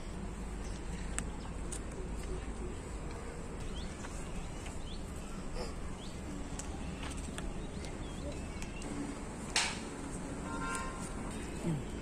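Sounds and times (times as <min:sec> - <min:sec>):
small birds chirping: 0:00.1 - 0:08.9.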